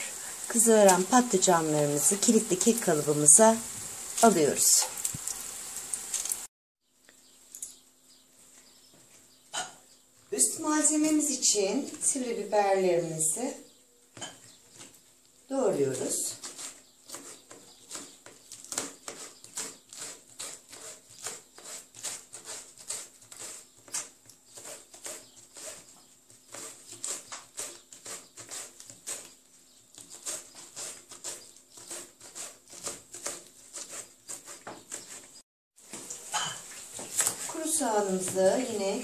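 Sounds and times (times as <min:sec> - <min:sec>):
knife slicing peppers on plastic tray: 0:16.2 - 0:36.1.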